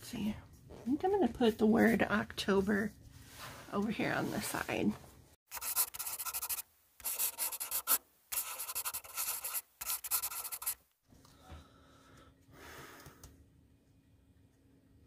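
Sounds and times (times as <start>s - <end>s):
marker pen scratching on paper: 5.5s - 10.8s.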